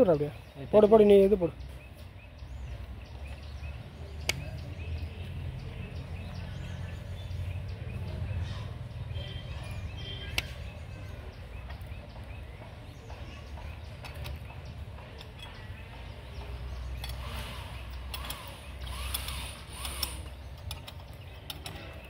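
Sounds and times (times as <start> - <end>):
sharp metal clicks: 4.2 - 4.7, 10.2 - 10.8, 13.1 - 22.0.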